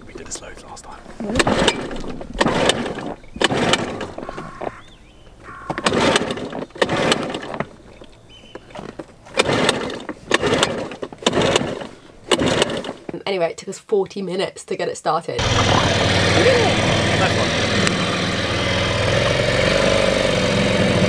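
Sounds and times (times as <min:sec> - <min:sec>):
outboard motor turning over: 0:01.2 - 0:13.2, 0:15.4 - 0:21.0
recoil starter cord yanks: 0:01.2 - 0:13.2.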